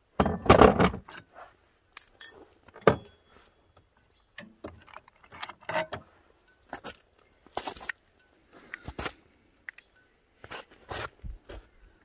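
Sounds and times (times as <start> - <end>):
metal parts clinking: 1.9 - 3.3.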